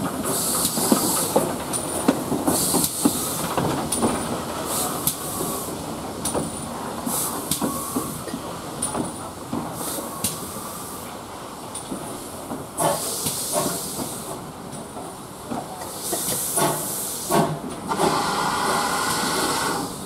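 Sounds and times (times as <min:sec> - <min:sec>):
steam locomotive hissing: 0:00.0 - 0:20.0.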